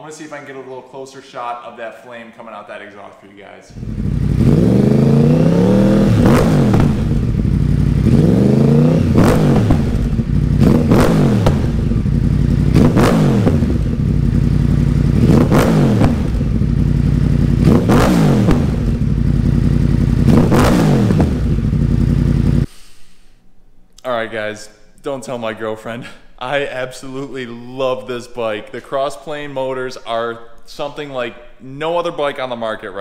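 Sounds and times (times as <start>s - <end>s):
exhaust cracks: 3.7s - 22.7s
motorcycle engine revving: 3.7s - 22.7s.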